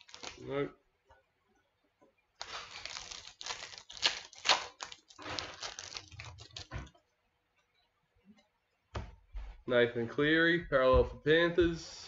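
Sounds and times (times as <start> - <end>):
wrapper tearing and crinkling: 0.0 - 0.5, 2.4 - 6.7.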